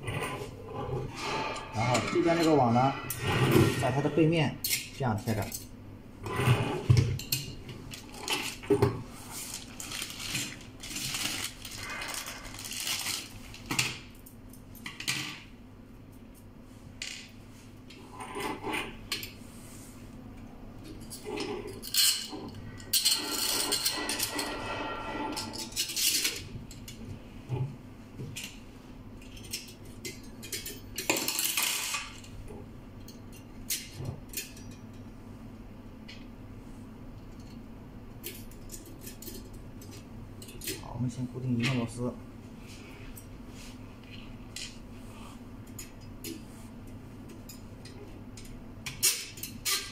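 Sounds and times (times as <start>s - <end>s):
metal parts clinking and scraping: 21.0s - 27.0s.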